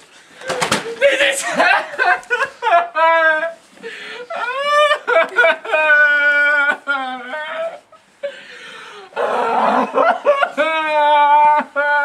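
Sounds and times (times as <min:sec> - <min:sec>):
person wailing and whimpering: 0:04.3 - 0:08.0, 0:09.1 - 0:12.0.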